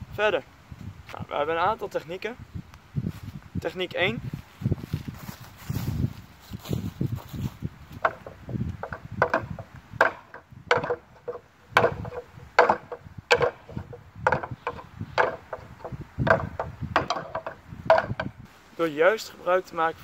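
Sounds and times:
rings knocking on wooden pegs: 0:07.9 - 0:18.4.

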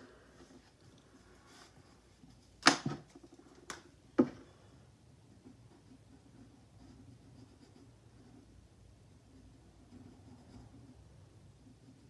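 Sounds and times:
marker scratching on paper: 0:05.4 - 0:12.0.

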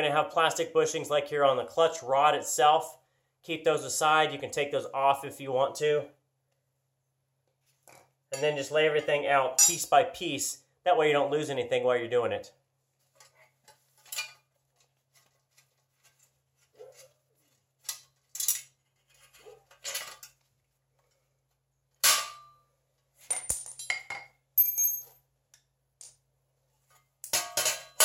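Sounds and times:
steel parts clinking and clanking: 0:17.8 - 0:20.4, 0:27.2 - 0:28.0.

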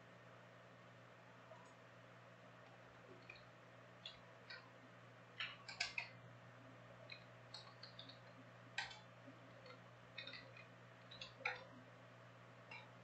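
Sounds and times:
steady low hum: 0:00.0 - 0:13.0
light clicks and taps: 0:02.6 - 0:04.7, 0:05.4 - 0:06.2, 0:07.0 - 0:11.8.

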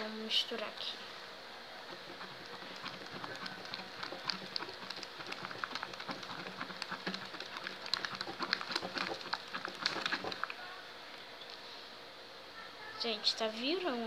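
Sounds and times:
faint steady hum: 0:00.0 - 0:14.0
slime squelching while stirred: 0:01.8 - 0:10.6.

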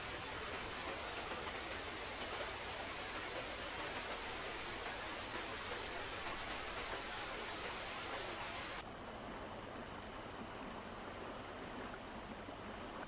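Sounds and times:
rushing water hiss: 0:00.0 - 0:08.8
running stream: 0:00.0 - 0:13.0.

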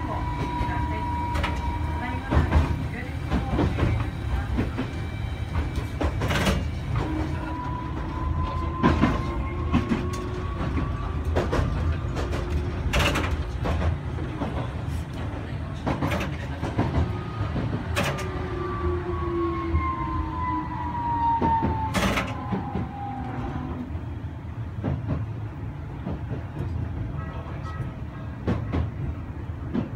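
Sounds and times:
tram motor whine: 0:00.0 - 0:26.8
tram low rumble: 0:00.0 - 0:29.9
wheels clacking over rail joints: 0:00.4 - 0:18.4.

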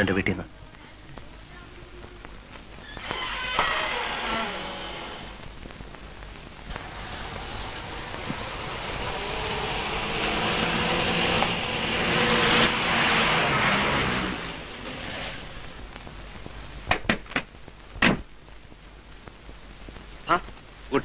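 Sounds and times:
car engine approaching: 0:06.7 - 0:15.5.

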